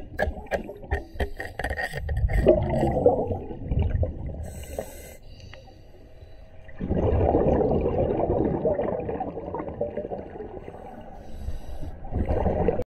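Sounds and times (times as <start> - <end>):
exhaled bubbles underwater: 0.0 - 5.0, 6.6 - 12.9
regulator inhalation hiss: 4.5 - 6.4, 11.2 - 12.0.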